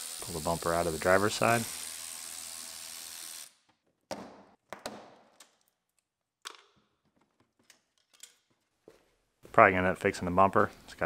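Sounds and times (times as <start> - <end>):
power ratchet running: 0.0 - 3.6.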